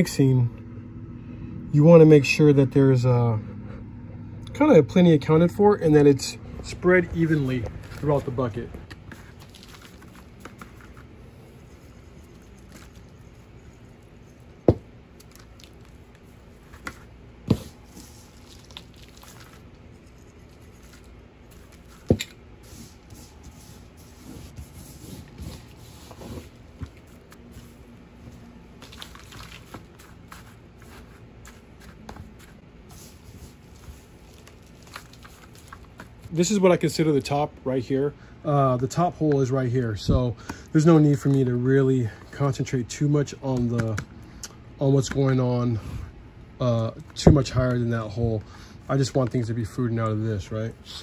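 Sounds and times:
straw rustling and crunching: 6.7s - 13.3s, 17.7s - 22.1s, 25.6s - 36.3s.

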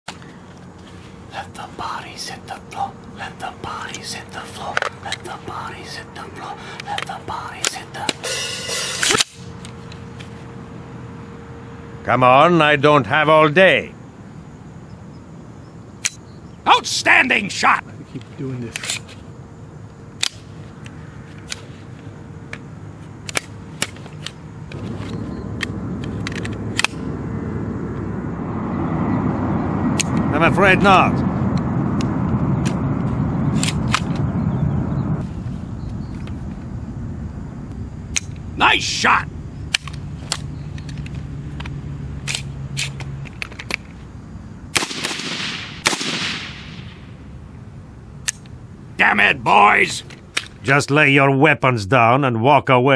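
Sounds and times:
low steady hum: 0.2s - 13.1s
low rumble: 24.6s - 38.6s
rifle shots with echo: 44.8s - 47.0s.

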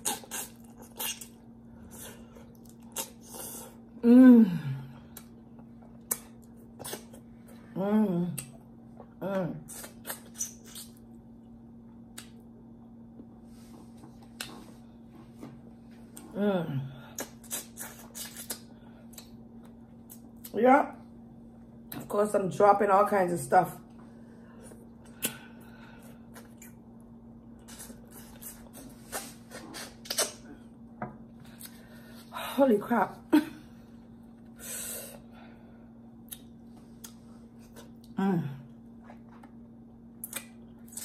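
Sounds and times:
steady low hum: 0.0s - 41.0s
wet lip smacks and chewing: 17.2s - 19.4s, 27.6s - 30.5s, 36.2s - 38.1s, 40.2s - 41.0s.

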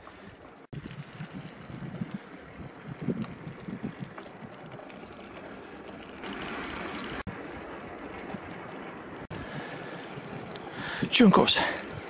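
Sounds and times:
bicycle tyres on asphalt: 0.0s - 12.0s
wind buffeting microphone: 0.8s - 12.0s.

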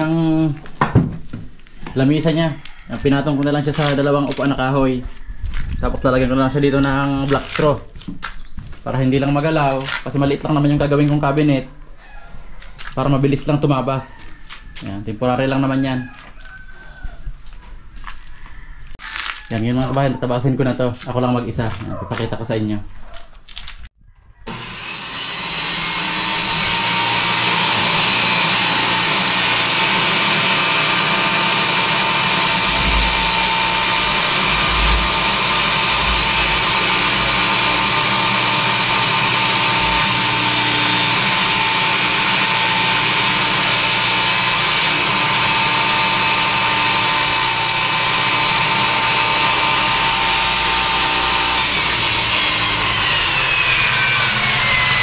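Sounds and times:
power saw ripping plywood: 24.5s - 55.0s.

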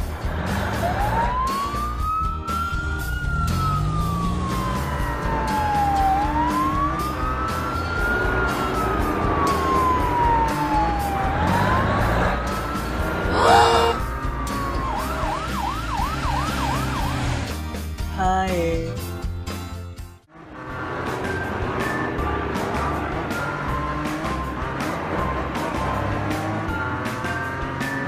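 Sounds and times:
loud siren blare: 0.6s - 17.5s, 21.1s - 25.8s
wailing siren: 0.6s - 17.5s, 21.2s - 25.9s.

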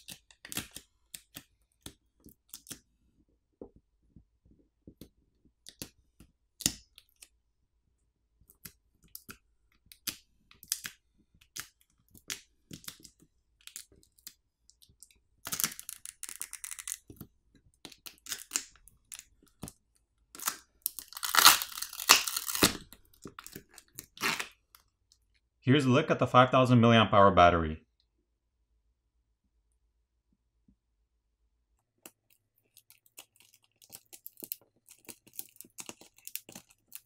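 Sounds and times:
adhesive tearing crackle: 15.4s - 17.3s, 17.9s - 24.8s, 32.1s - 37.0s
plastic film crinkling: 20.4s - 24.8s, 32.7s - 37.0s.

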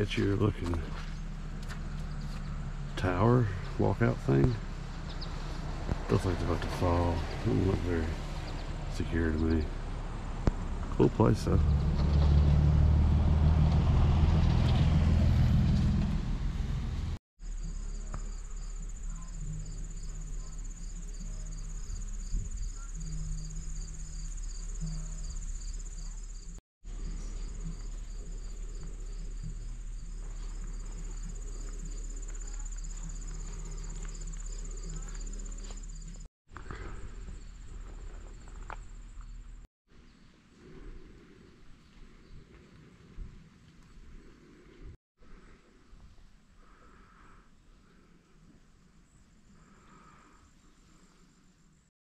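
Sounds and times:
insect chirping: 17.4s - 36.3s
insects droning: 17.4s - 39.6s, 46.6s - 51.9s.

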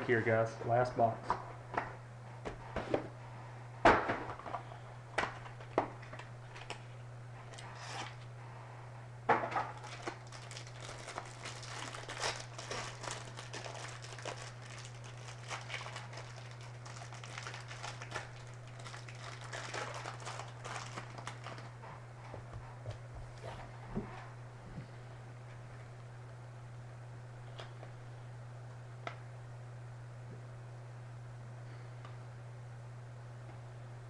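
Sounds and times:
steady low hum: 0.0s - 34.0s
plastic wrap crinkling: 9.7s - 21.8s.

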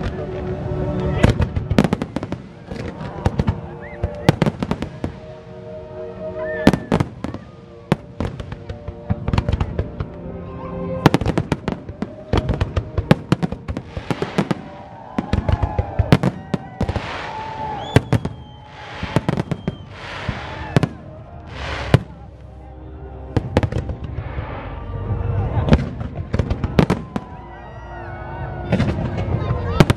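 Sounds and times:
fireworks hissing crackle: 4.1s - 5.6s, 13.2s - 22.5s
fireworks bangs: 11.0s - 22.3s.

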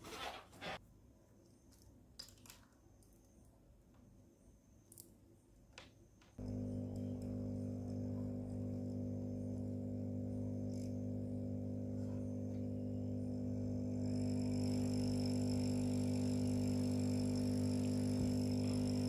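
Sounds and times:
air pump humming: 6.4s - 19.0s.

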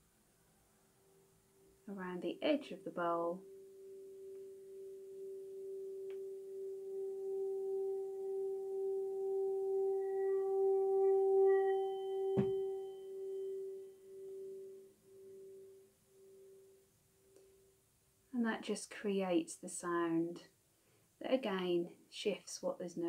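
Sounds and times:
singing bowl ringing tone: 3.2s - 17.4s
beater knock: 12.3s - 12.8s.

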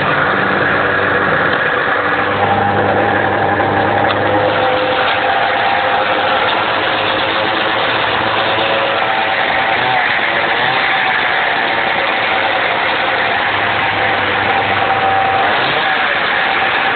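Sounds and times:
snowmobile engine idling: 0.0s - 16.9s.

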